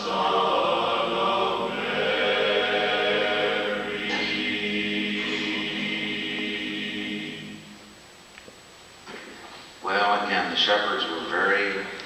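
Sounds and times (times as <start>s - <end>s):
men's chorus singing a cappella: 0.0s - 7.8s.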